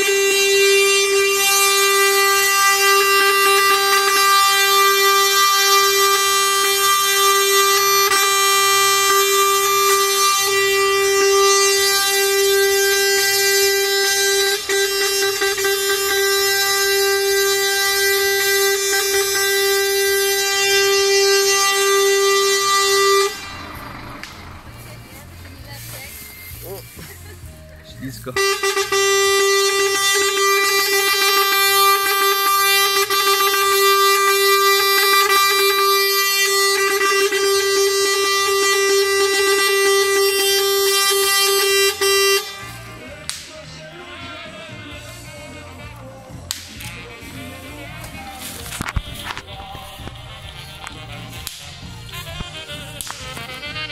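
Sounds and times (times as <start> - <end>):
truck air horn: 0.0 - 53.9
low pulsing beat: 44.8 - 53.9.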